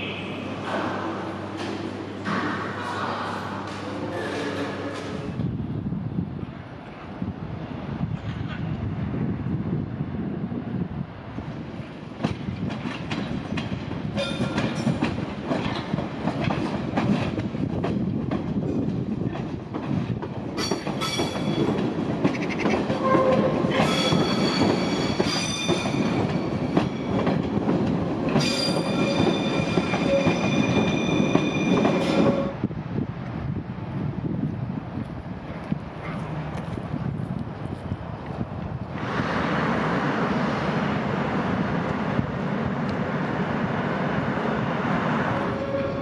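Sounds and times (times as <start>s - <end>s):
train wheels clicking over rail joints: 12.1s - 32.4s
high wheel squeal: 28.4s - 32.5s.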